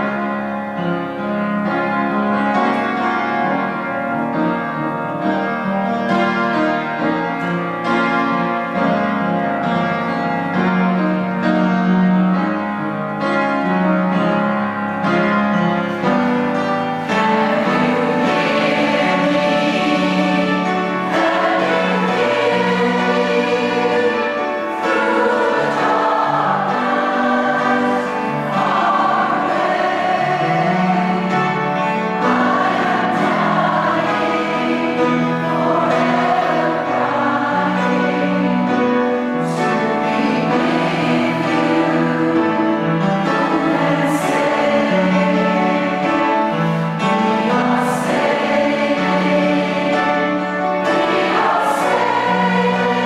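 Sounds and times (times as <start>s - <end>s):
choir singing slow song: 15.9s - 53.0s.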